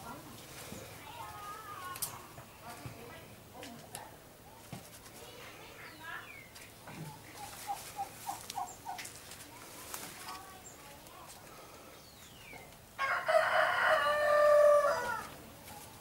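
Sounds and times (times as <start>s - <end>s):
chicken clucking: 6.9s - 9.2s
rooster crowing: 13.0s - 15.4s.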